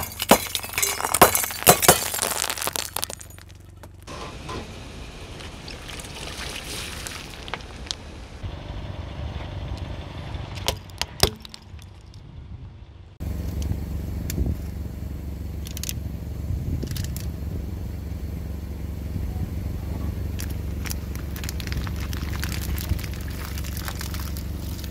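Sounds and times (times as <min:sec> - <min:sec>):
plastic toy cars cracking: 0:00.0 - 0:04.1, 0:10.6 - 0:12.2, 0:20.4 - 0:24.9
tyre rolling over asphalt: 0:00.0 - 0:04.4, 0:19.6 - 0:24.9
car engine rumbling: 0:00.0 - 0:24.9.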